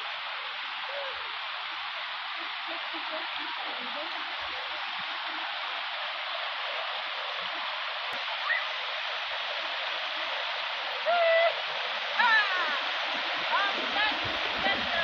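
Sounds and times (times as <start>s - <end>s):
stream water rushing over rock: 0.0s - 15.0s.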